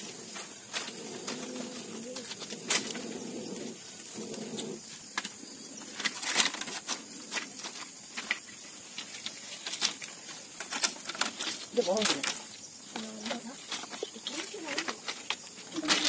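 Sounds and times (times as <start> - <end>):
dove cooing: 0.0 - 7.9.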